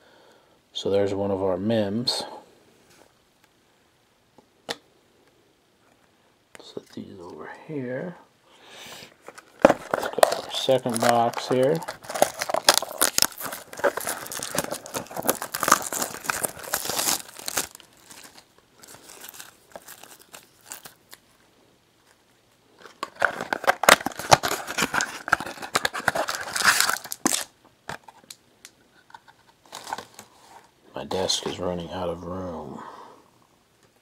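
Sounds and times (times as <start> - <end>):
plastic wrapping torn and crumpled: 9.3 - 21.2, 22.8 - 28.4, 29.6 - 30.3.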